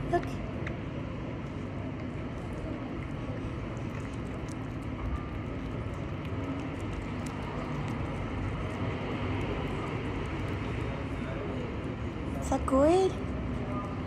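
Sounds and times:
cat eating wet food: 0.0s - 14.0s
city street traffic rumble: 0.0s - 14.0s.

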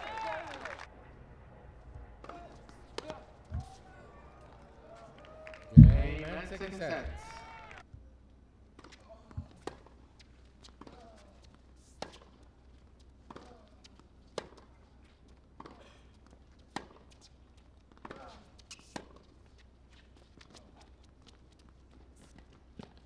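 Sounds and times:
ball bouncing on hard court: 5.8s - 6.4s
racket hitting tennis ball: 14.3s - 14.7s, 16.7s - 17.2s.

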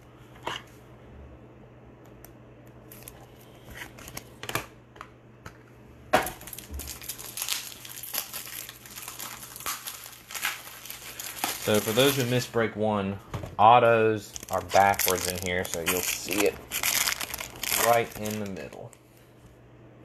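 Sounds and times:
plastic wrapper crinkling: 6.4s - 12.6s, 14.2s - 19.0s.

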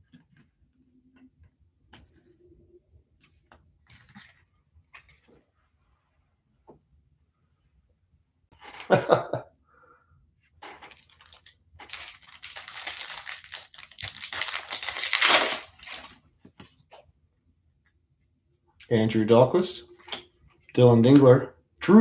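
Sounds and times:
foil wrapper crinkling and tearing: 10.9s - 16.2s.

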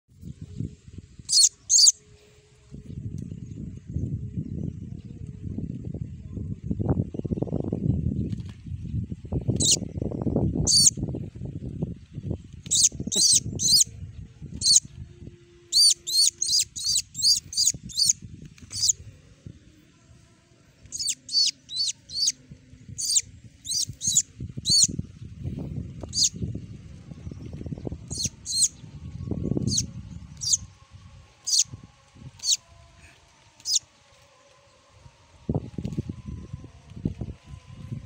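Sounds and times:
young bird peeping: 1.2s - 2.0s, 9.5s - 9.8s, 10.6s - 11.0s, 12.6s - 13.9s, 14.6s - 14.8s, 15.7s - 19.0s, 20.8s - 22.4s, 23.0s - 25.0s, 26.0s - 26.4s, 28.0s - 28.8s, 29.6s - 30.7s, 31.4s - 31.7s, 32.4s - 32.6s, 33.6s - 33.8s.

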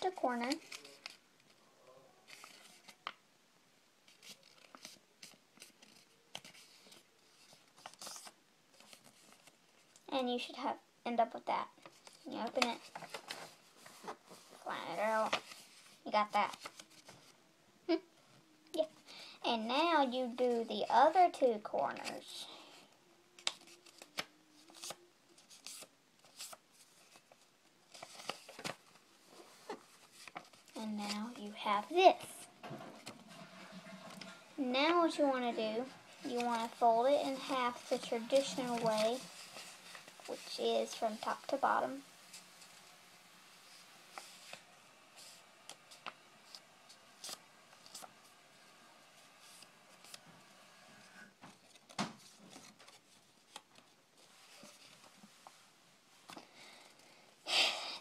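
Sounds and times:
paper rustling and crinkling: 0.0s - 1.6s, 2.2s - 3.2s, 4.1s - 10.0s, 11.8s - 17.4s, 23.3s - 31.8s, 32.6s - 48.5s, 49.1s - 50.7s, 51.4s - 55.6s.

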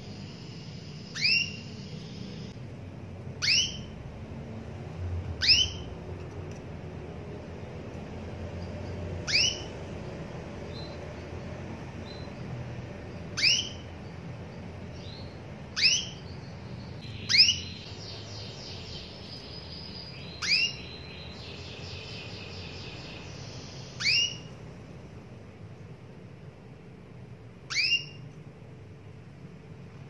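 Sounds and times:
canary call notes: 0.0s - 2.6s, 3.3s - 4.0s, 5.3s - 6.0s, 9.0s - 9.9s, 13.1s - 14.2s, 15.0s - 24.6s, 27.6s - 28.3s.

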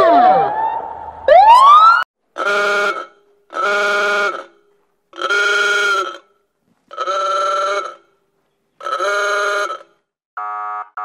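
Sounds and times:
police siren whoop: 0.0s - 2.1s
horn blasts: 2.4s - 8.1s, 8.8s - 11.0s.

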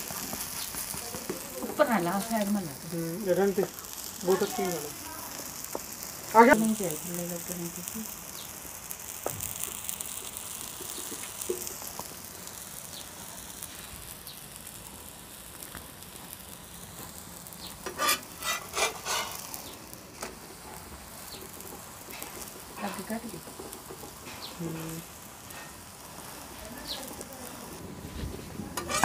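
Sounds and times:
pancake sizzling in oil: 0.0s - 29.0s
metal spatula scraping pan: 17.8s - 19.5s, 28.8s - 29.0s.

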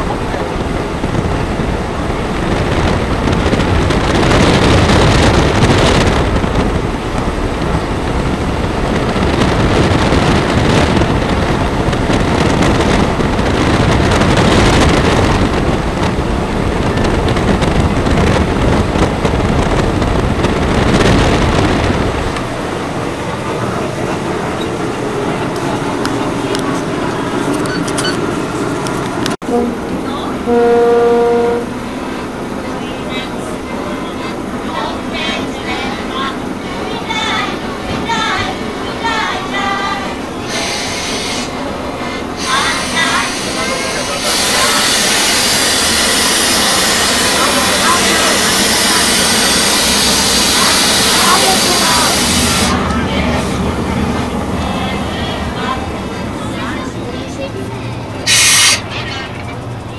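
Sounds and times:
wind on microphone: 0.0s - 27.8s
train rumble: 0.0s - 59.9s.

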